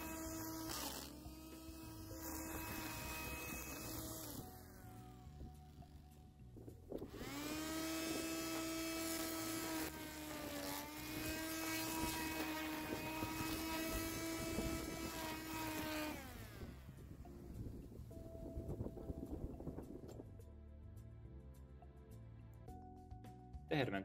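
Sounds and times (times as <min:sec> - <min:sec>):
electric string trimmer whining: 0:00.0 - 0:18.4
trimmer line cutting grass: 0:00.0 - 0:18.4.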